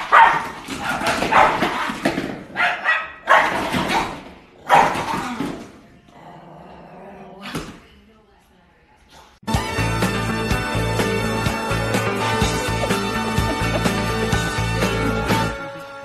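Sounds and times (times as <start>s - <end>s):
small dog barking angrily: 0.0s - 5.2s.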